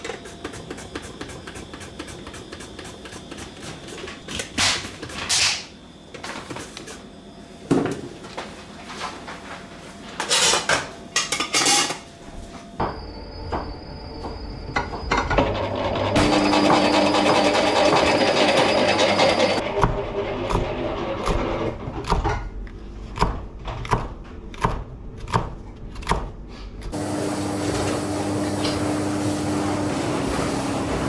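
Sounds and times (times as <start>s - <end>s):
dishes and utensils clattering: 10.2s - 12.1s.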